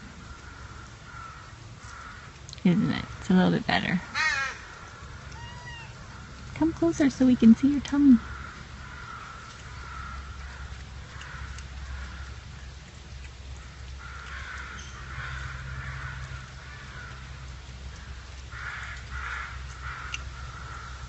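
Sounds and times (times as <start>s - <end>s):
steady low hum: 0.0s - 21.0s
bird calls: 13.6s - 21.0s.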